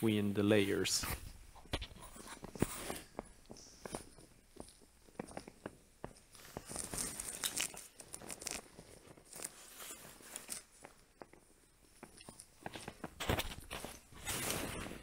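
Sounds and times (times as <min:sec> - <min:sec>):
inflatable boat rustling and scraping: 0:13.6 - 0:15.0.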